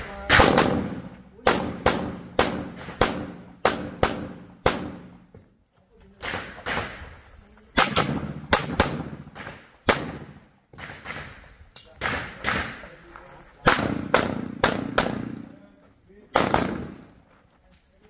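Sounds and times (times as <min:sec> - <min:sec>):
handgun shots: 0:00.3 - 0:05.1, 0:13.7 - 0:15.4, 0:16.4 - 0:17.0.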